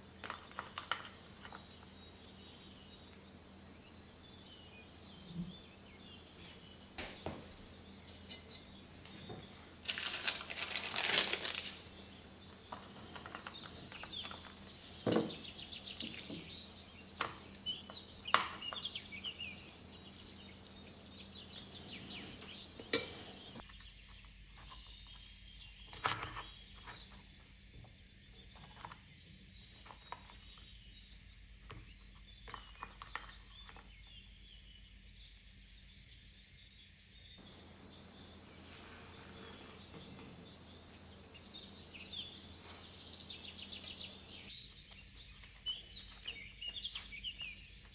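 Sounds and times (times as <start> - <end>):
rustling scrape: 8.2 - 12.0, 37.4 - 41.8
metal spoon scraping dish: 22.2 - 23.6.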